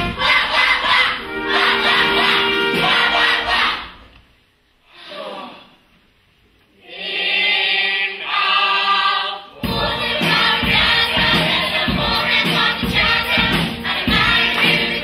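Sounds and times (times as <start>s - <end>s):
chorus singing: 0.0s - 4.2s, 6.8s - 15.0s
musical accompaniment with steady beat: 9.6s - 15.0s.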